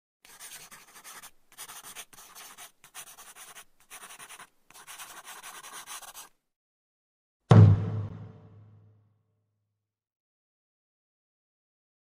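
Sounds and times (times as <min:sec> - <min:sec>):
pencil scratching on paper: 0:00.2 - 0:06.4.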